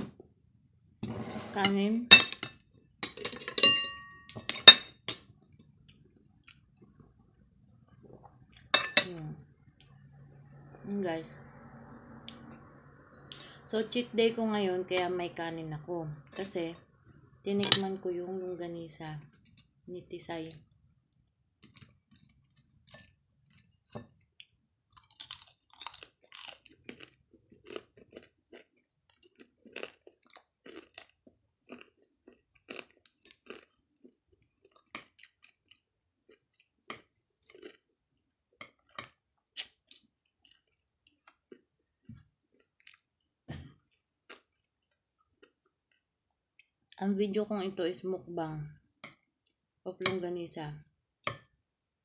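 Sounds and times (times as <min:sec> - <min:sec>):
person chewing food: 0:04.5 - 0:08.8, 0:21.1 - 0:47.0, 0:48.9 - 0:49.7.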